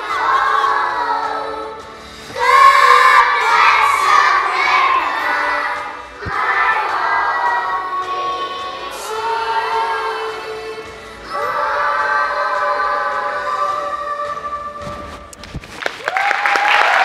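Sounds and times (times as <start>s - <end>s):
children singing loudly: 2.3s - 13.8s.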